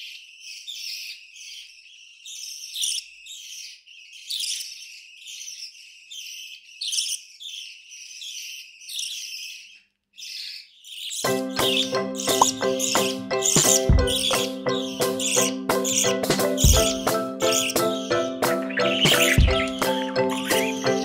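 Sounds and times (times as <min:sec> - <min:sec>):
bird chicks chirping: 0:00.0 - 0:21.0.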